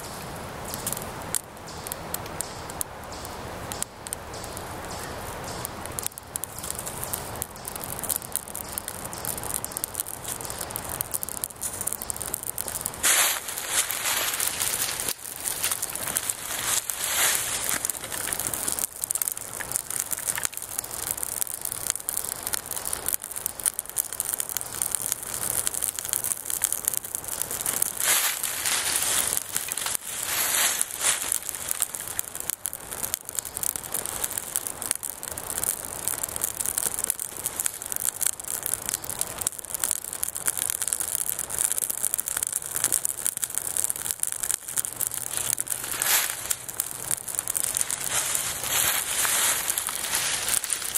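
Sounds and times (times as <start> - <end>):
tinder crackling as it burns: 0.0 - 50.9
dry twigs rustling: 1.7 - 50.9.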